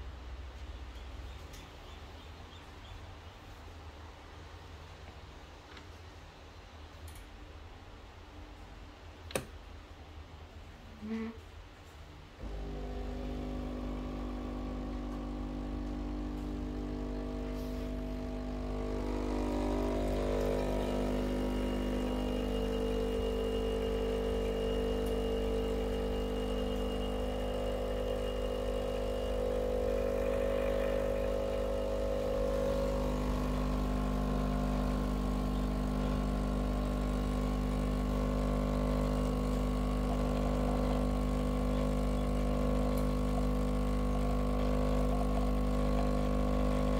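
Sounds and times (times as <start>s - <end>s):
espresso machine pump humming: 12.4s - 46.9s.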